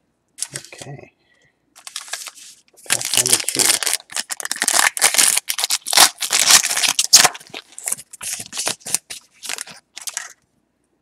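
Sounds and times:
foil wrapper crinkling: 0:01.8 - 0:10.4.

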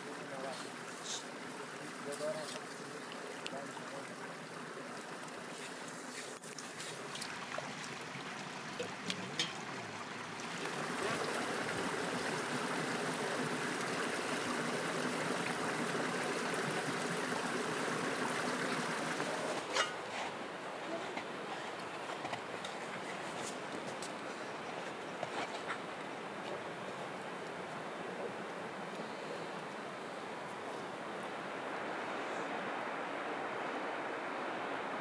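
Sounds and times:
stream water trickling: 0:00.0 - 0:35.0
metal dishes clinking: 0:09.3 - 0:09.6.

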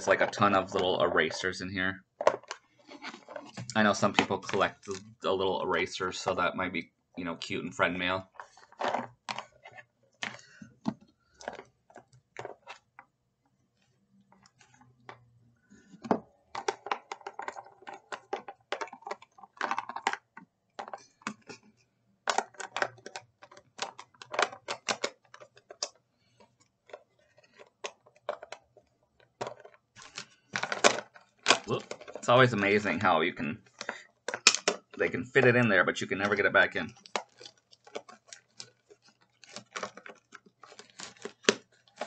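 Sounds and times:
erasers rattling in plastic box: 0:29.3 - 0:32.3, 0:36.9 - 0:42.0.

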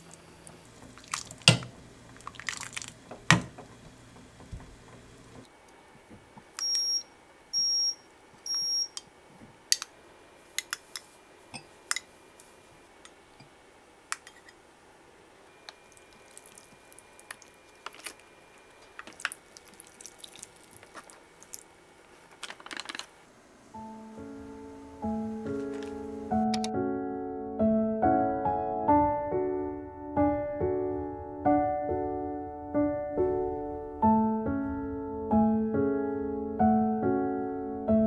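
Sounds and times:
music: 0:23.8 - 0:38.0.

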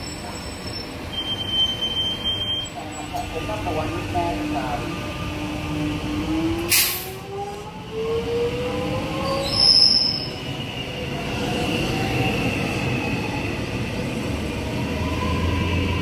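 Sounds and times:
high squeal: 0:00.0 - 0:03.0, 0:09.2 - 0:11.9.

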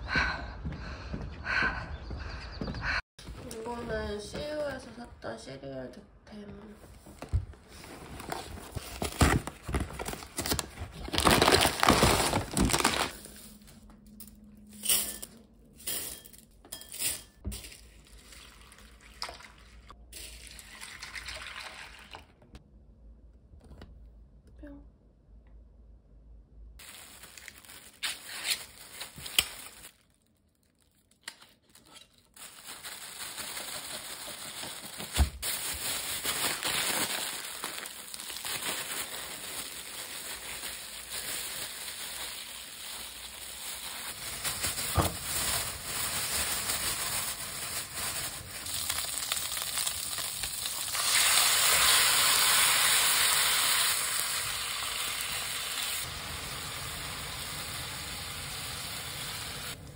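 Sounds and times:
food sizzling in a frying pan: 0:48.9 - 0:59.8.

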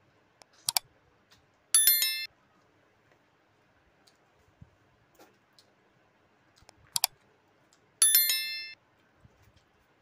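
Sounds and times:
mouse click: 0:00.4 - 0:00.9, 0:06.6 - 0:07.2
bright bell ding: 0:01.8 - 0:02.3, 0:08.0 - 0:08.8.

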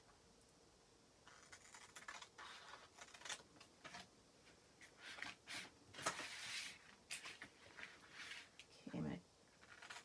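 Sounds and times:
scissors snipping paper: 0:01.3 - 0:04.0.

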